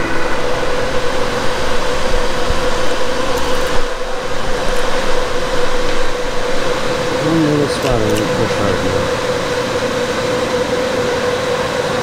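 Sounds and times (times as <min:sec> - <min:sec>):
blower fan humming: 0:00.0 - 0:12.0.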